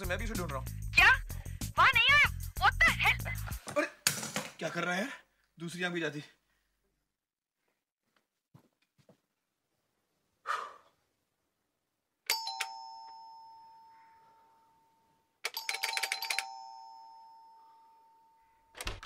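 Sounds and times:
doorbell ringing: 0:12.3 - 0:18.8.

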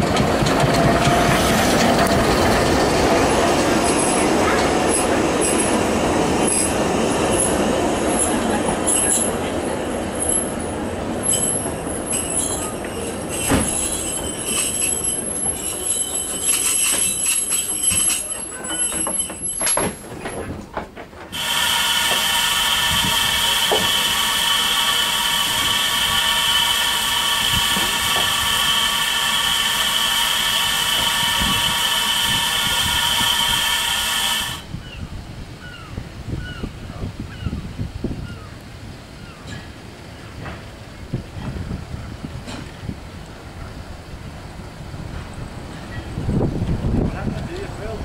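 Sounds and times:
steam locomotive hissing: 0:00.0 - 0:19.6, 0:21.3 - 0:34.8
rail clicks: 0:00.0 - 0:34.7, 0:39.4 - 0:48.0
railway carriages rolling past: 0:00.0 - 0:48.0
high steady wheel squeal: 0:03.3 - 0:19.9, 0:21.3 - 0:35.0.

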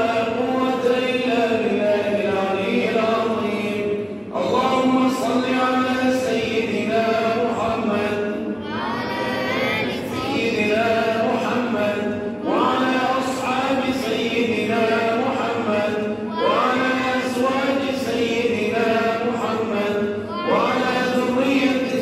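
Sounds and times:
man singing a religious chant: 0:00.0 - 0:22.0.

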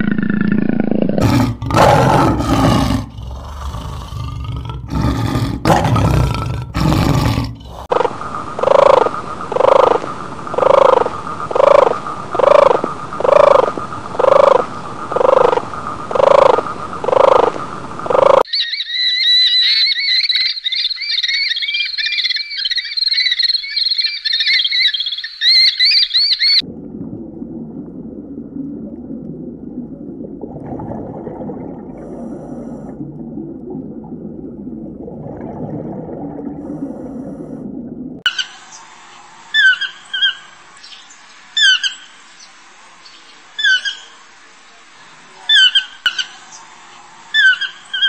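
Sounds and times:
tortoise calls: 0:00.3 - 0:26.6, 0:47.3 - 0:48.0
tiger roaring and growling: 0:00.7 - 0:07.9
bird chirping: 0:18.5 - 0:26.6.

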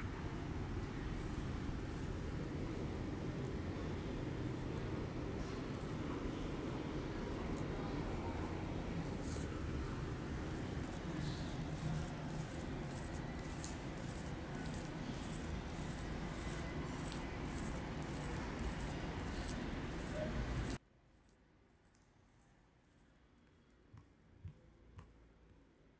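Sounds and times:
room noise: 0:00.0 - 0:25.8
fingertips rubbing skin: 0:10.4 - 0:20.8.

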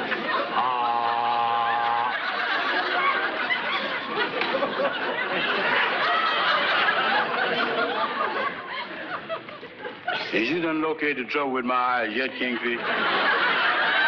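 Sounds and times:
studio audience laughter: 0:00.0 - 0:10.5, 0:12.2 - 0:14.0
man holding low ahh: 0:00.5 - 0:02.2.

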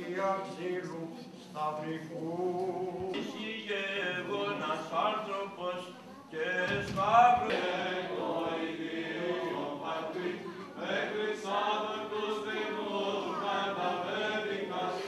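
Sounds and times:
voices chanting a hymn: 0:00.0 - 0:15.0.

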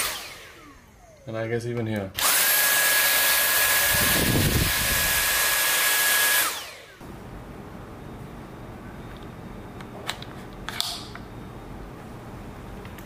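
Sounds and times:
cordless vacuum running: 0:00.0 - 0:01.3, 0:02.2 - 0:07.2.

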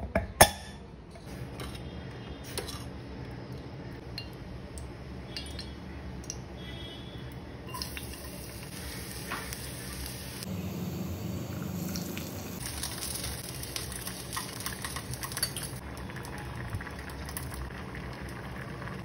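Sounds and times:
steel cookware clinking: 0:14.3 - 0:15.8.

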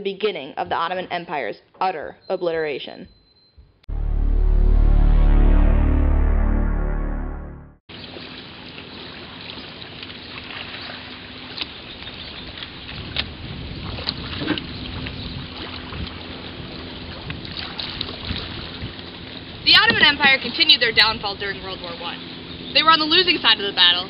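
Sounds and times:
water lapping and splashing: 0:07.9 - 0:22.7.

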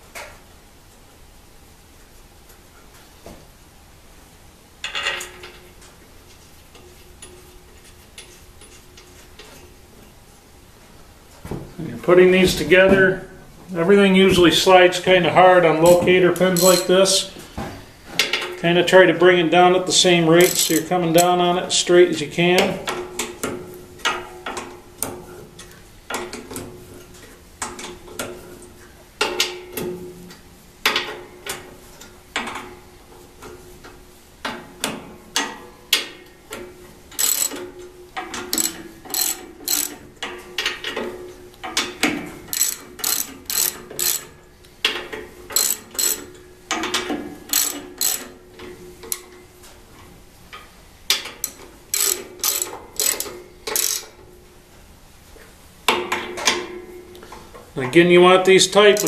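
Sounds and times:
socket ratchet clicking: 0:16.6 - 0:16.9, 0:20.4 - 0:20.9, 0:37.2 - 0:37.6, 0:38.5 - 0:40.0, 0:42.5 - 0:44.3, 0:45.5 - 0:46.3, 0:47.5 - 0:48.3, 0:51.4 - 0:54.1.

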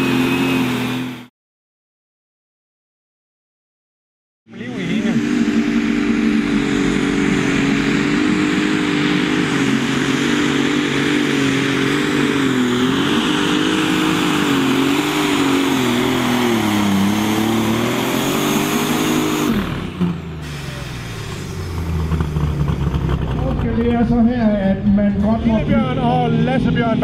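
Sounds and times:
diesel tractor engine under full load: 0:00.0 - 0:01.3, 0:04.5 - 0:27.0
engine pop: 0:20.4 - 0:24.4.

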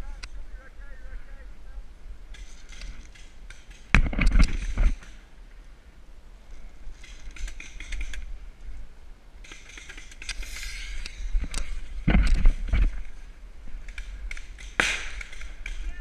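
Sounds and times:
scattered clicks: 0:02.3 - 0:05.2, 0:07.0 - 0:08.3, 0:09.4 - 0:12.9, 0:13.8 - 0:16.0.

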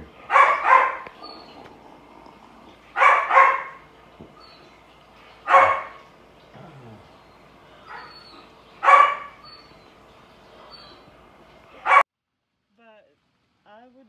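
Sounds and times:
parrot imitating dog bark: 0:00.2 - 0:01.4.

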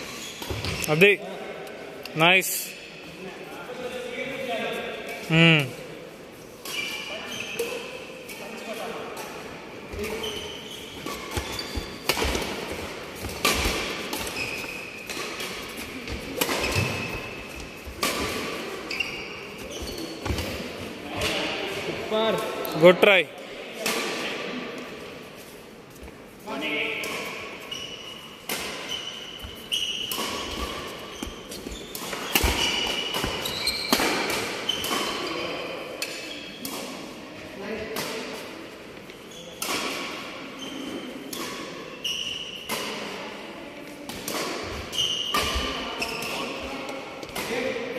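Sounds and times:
shoes squeaking on court: 0:00.0 - 0:01.2, 0:06.6 - 0:22.0, 0:27.0 - 0:36.9, 0:39.0 - 0:39.7, 0:40.5 - 0:43.0, 0:44.0 - 0:47.7
racket hitting shuttlecock: 0:11.0 - 0:18.8, 0:28.5 - 0:28.9, 0:29.5 - 0:35.3, 0:44.1 - 0:46.4.

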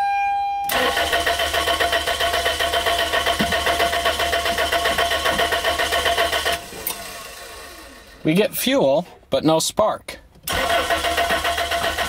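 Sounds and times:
engine cranking on starter: 0:00.7 - 0:08.2, 0:10.5 - 0:12.0.

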